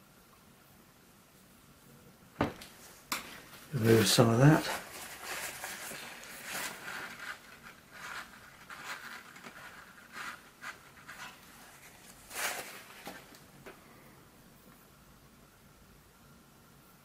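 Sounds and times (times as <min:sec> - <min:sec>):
tissue rustling on paper: 0:02.7 - 0:13.6.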